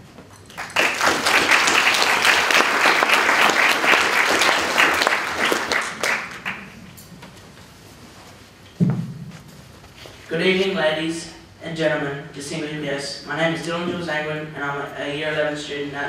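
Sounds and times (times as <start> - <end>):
audience applauding: 0.5 - 6.8.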